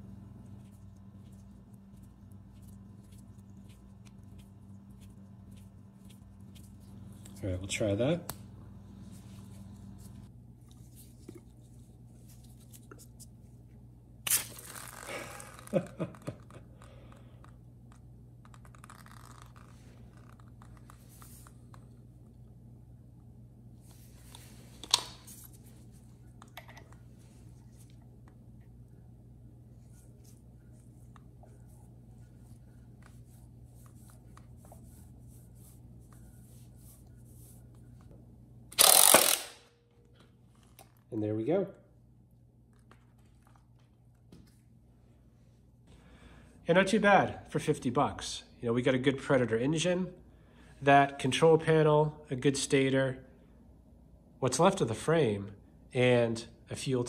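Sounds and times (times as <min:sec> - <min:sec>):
gloved hands rubbing and ticking: 0:00.0 - 0:07.6, 0:14.6 - 0:22.2, 0:29.6 - 0:38.1
squeeze bottle squirting water: 0:14.2 - 0:15.8.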